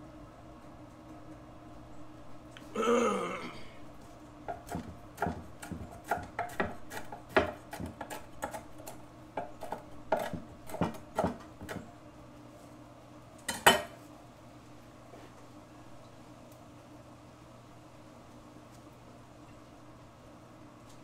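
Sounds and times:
knife chopping on wooden board: 4.5 - 11.8.

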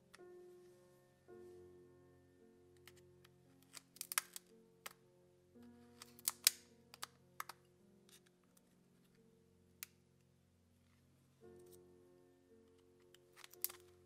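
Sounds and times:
soft background music: 0.0 - 14.0.

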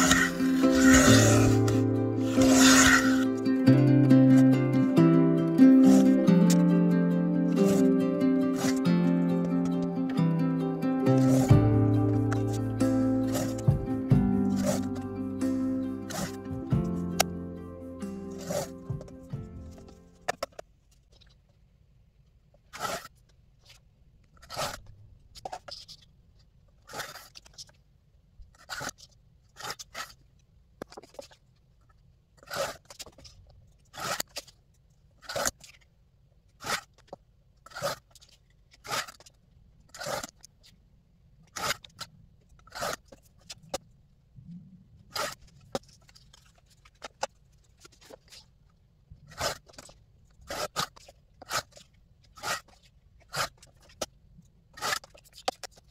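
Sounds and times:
paper trimmer slicing card: 0.0 - 3.6, 5.6 - 6.6, 7.5 - 10.0, 11.1 - 17.4, 18.0 - 20.4.

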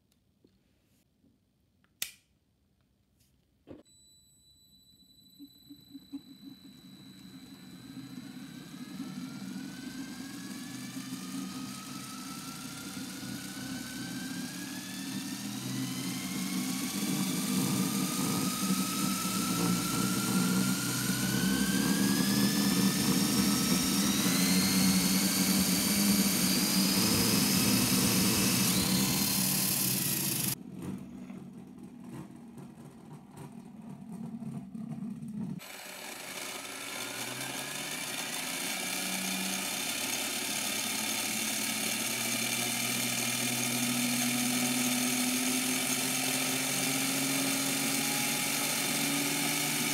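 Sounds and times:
toy gear train whine: 3.9 - 31.9, 34.2 - 49.9
low motor hum: 4.7 - 35.8.

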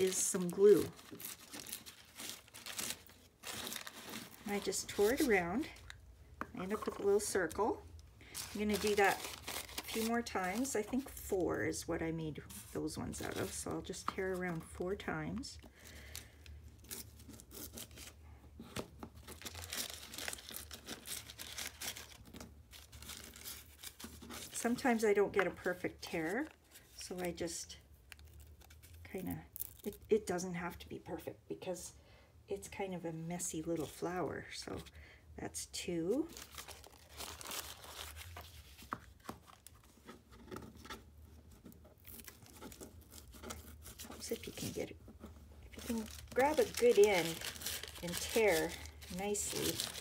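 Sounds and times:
paper tearing and rustling: 0.0 - 5.4, 8.3 - 10.7, 19.2 - 24.6, 36.3 - 40.0, 45.7 - 50.0
paper filter tearing: 8.3 - 10.7, 45.8 - 50.0.

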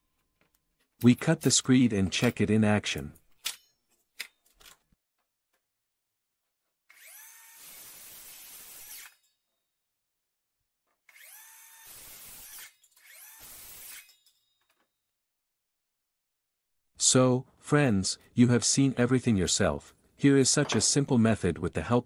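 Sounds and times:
circular saw cutting board: 6.9 - 9.4, 11.0 - 14.3.

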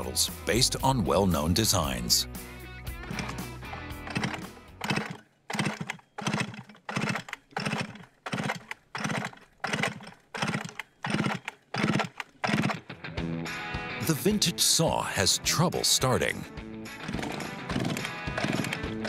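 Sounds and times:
engine rasping buzz: 2.9 - 12.9, 16.9 - 19.0
chainsaw starter cord pulls: 3.0 - 12.9, 17.0 - 19.0.

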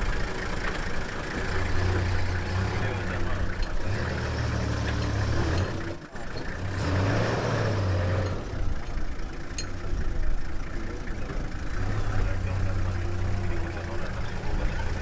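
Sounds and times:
vehicle engine idling: 0.0 - 7.0, 7.7 - 15.0.

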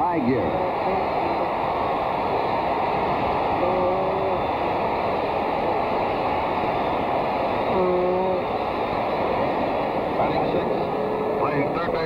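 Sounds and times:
stadium crowd cheering: 0.0 - 12.0.

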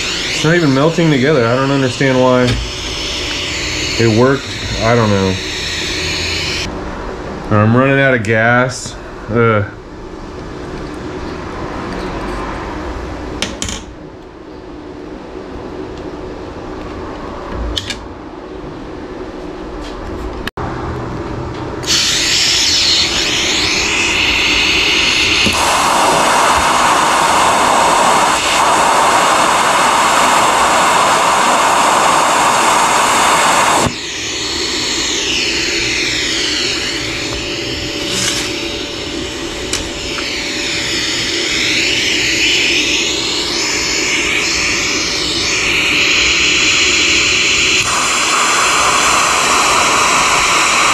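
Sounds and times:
welding arc hissing: 0.0 - 6.7, 21.8 - 50.9
welding torch hiss: 0.0 - 6.7, 21.8 - 50.9.

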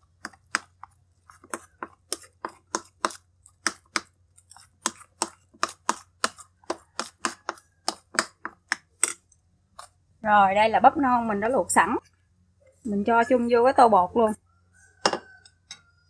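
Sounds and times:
metal spoon beating batter in bowl: 0.0 - 10.0.

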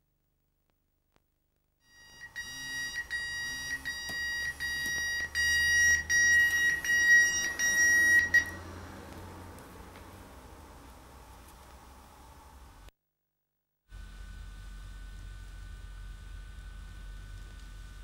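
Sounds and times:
alarm clock beeping: 1.9 - 8.7.

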